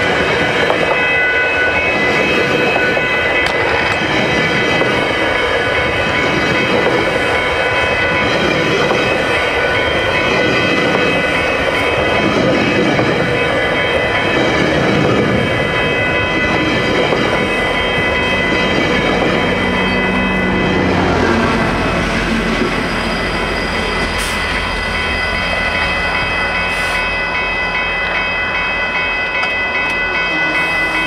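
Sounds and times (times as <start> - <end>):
diesel locomotive engine drone: 0.0 - 31.0
high-pitched ringing tones: 15.4 - 31.0.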